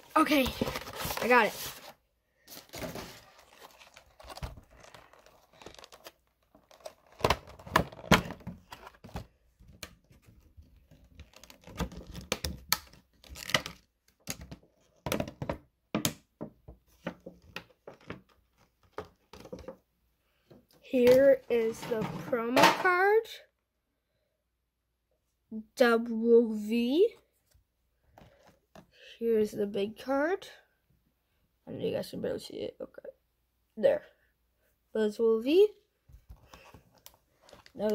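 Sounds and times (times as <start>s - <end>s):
plastic packaging crinkling: 2.5s - 8.1s.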